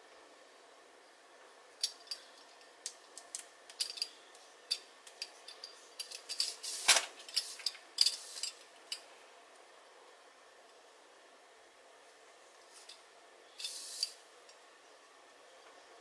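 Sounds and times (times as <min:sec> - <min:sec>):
metal rings clicking and clinking: 0:01.8 - 0:09.0.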